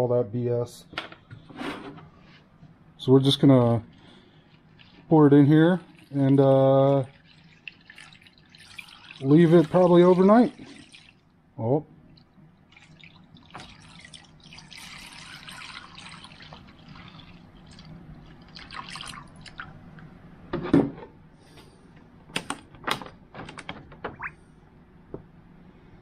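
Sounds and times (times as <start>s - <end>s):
liquid trickling and splashing: 3.6s - 11.4s, 12.0s - 19.8s.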